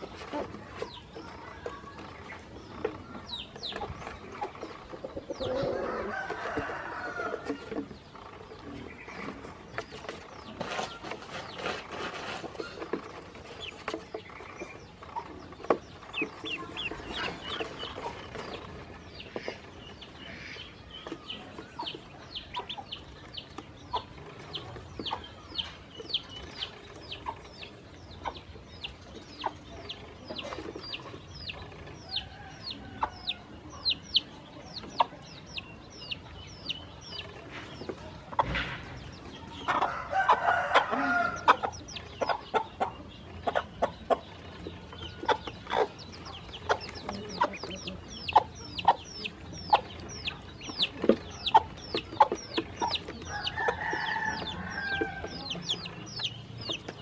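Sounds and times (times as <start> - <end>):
ducklings peeping: 0.0 - 57.0.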